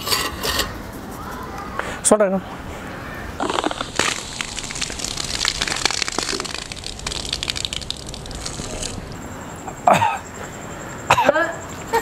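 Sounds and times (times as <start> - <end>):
soda fizzing bubbles: 3.4 - 9.2.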